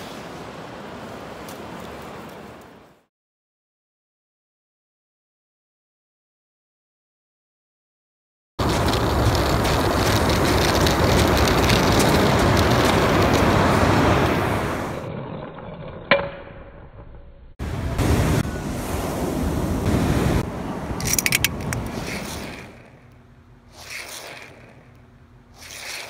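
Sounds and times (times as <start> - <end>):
ocean surf: 0.0 - 2.9, 8.6 - 15.1, 17.6 - 23.0
wind buffeting microphone: 8.6 - 15.0.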